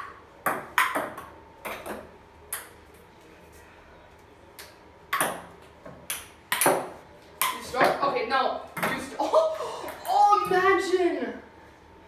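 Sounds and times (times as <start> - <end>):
table tennis ball hits: 0.0 - 2.8, 5.1 - 8.0, 8.8 - 9.1.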